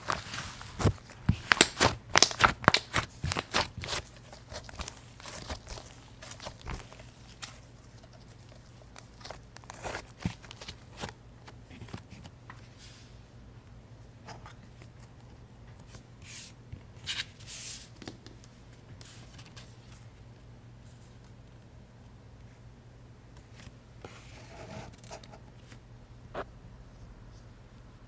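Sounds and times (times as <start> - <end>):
slime crackling and tearing: 0.8 - 7.6.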